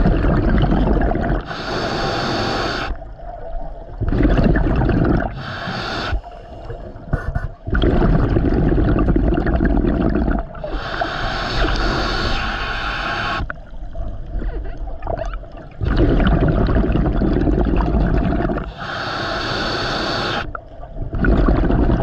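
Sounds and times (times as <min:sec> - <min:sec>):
exhaled bubbles gurgling: 0:00.0 - 0:22.0
regulator inhalation hissing: 0:01.4 - 0:03.0, 0:05.3 - 0:06.7, 0:10.6 - 0:13.5, 0:18.6 - 0:20.5.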